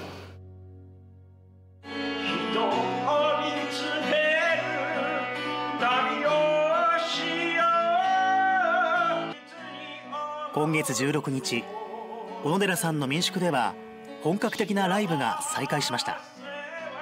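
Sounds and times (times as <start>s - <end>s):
guitar accompaniment: 0.0s - 17.0s
man singing with vibrato: 2.1s - 17.0s.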